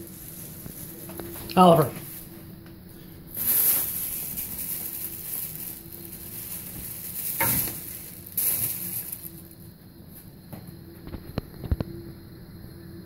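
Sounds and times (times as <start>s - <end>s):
faint low hum: 0.0s - 13.0s
treadmill hiss: 0.0s - 13.0s.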